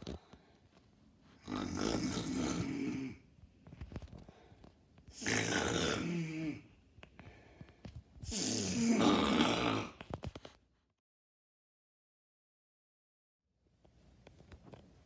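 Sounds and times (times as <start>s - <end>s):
boy snoring loudly: 1.4s - 3.2s, 5.2s - 6.7s, 8.2s - 10.0s.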